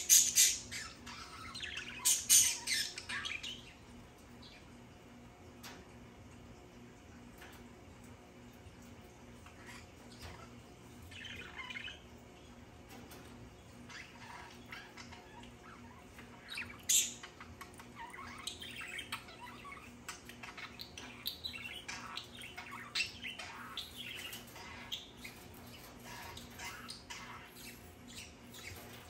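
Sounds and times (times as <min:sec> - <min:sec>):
budgerigars chattering: 0:00.0 - 0:03.7.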